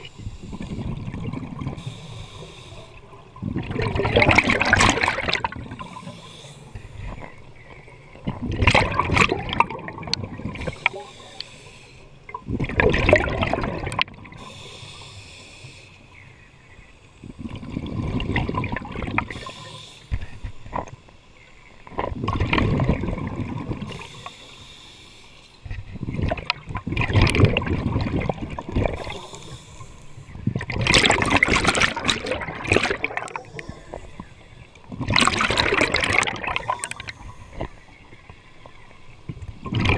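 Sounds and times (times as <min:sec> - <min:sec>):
scuba regulator bubbling bursts: 0:03.4 - 0:06.3, 0:08.3 - 0:11.4, 0:12.5 - 0:14.4, 0:30.4 - 0:34.0, 0:34.9 - 0:37.8.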